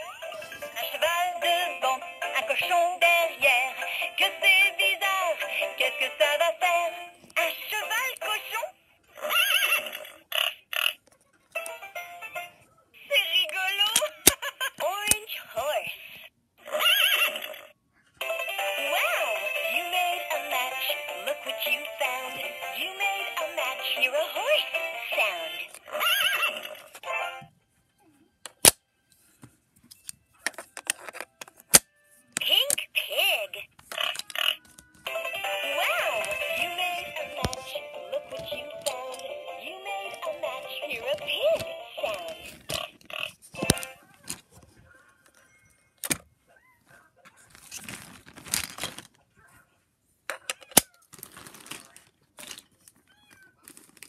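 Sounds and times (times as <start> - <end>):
toy synthesized singing voice: 0.0 - 10.0, 18.2 - 27.5, 32.4 - 44.1.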